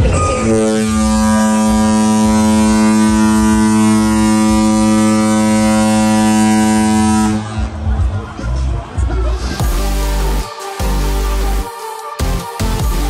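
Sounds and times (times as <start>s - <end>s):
ship horn blast: 0.0s - 7.8s.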